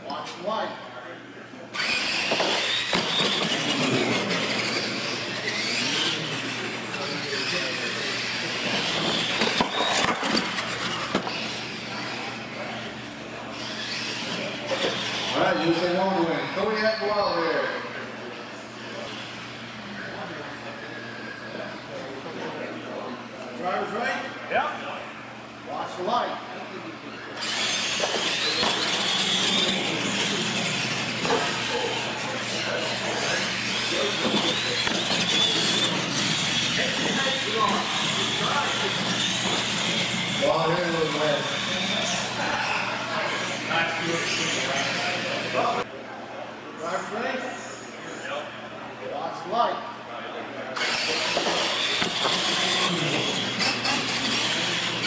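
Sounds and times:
toy truck motor whine: 0:01.7 - 0:16.7, 0:27.1 - 0:45.8, 0:50.8 - 0:55.0.

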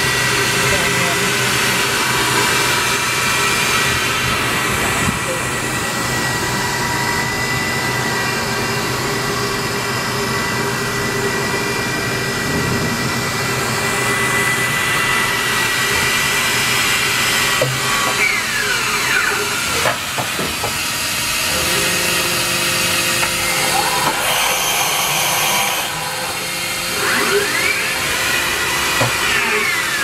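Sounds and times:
machine spindle whine: 0:00.0 - 0:30.0.

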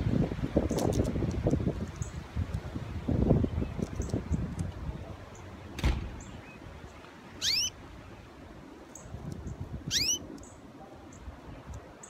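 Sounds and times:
canary chirping: 0:07.4 - 0:07.8, 0:08.9 - 0:10.6.

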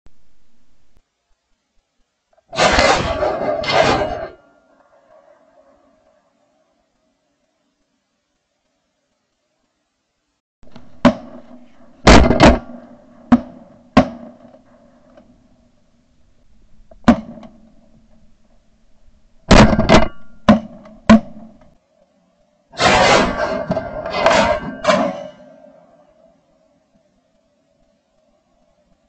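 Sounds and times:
shotgun shots: 0:02.6 - 0:04.4, 0:10.9 - 0:15.0, 0:19.5 - 0:21.5, 0:22.8 - 0:25.4.

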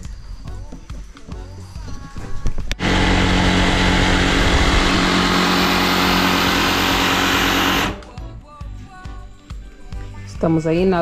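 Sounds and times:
electric power tool motor running: 0:02.8 - 0:08.2.

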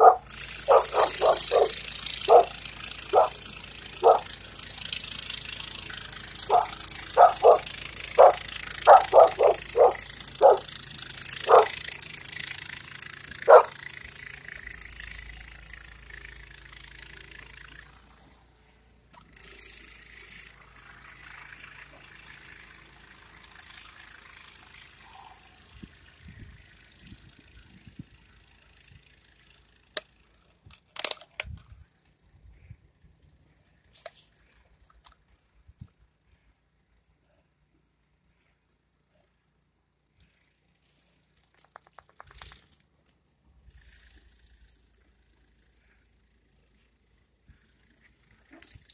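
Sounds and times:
dog barking: 0:00.0 - 0:03.4, 0:04.0 - 0:04.3, 0:06.5 - 0:10.7, 0:11.4 - 0:11.8, 0:13.5 - 0:13.8.

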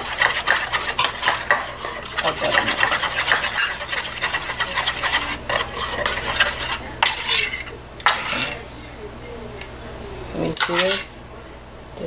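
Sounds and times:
whisk scraping metal bowl: 0:00.0 - 0:08.6, 0:10.5 - 0:11.2.

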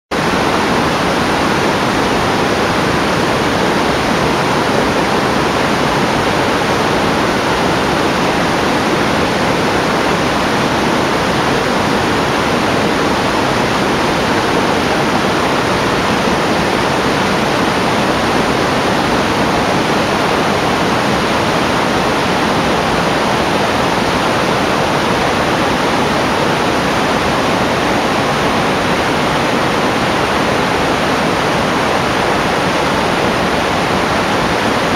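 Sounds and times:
waterfall rushing over rocks: 0:00.1 - 0:34.9.

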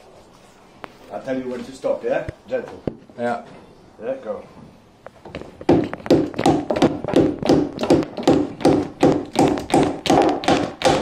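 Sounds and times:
hammer striking timber: 0:05.7 - 0:11.0.

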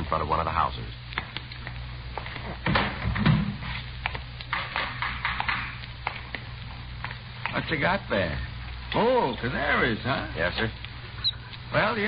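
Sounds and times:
low recording hum: 0:00.0 - 0:12.0
taps and knocks: 0:02.6 - 0:06.4.

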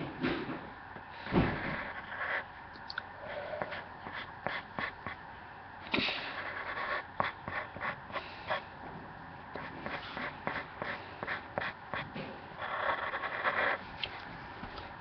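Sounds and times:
drawing tool scratching on paper: 0:06.3 - 0:08.6, 0:09.6 - 0:13.8.

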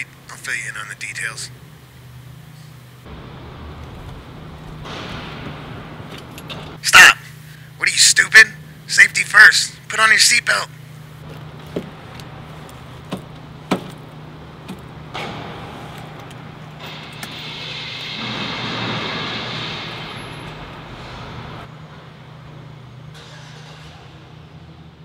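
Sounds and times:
idling car hum: 0:00.0 - 0:17.5
passing vehicle rush: 0:01.5 - 0:08.9, 0:10.7 - 0:23.1.

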